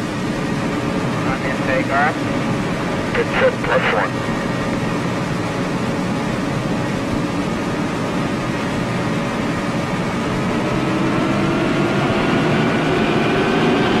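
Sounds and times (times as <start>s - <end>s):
gas turbine rising in pitch: 9.3s - 14.0s.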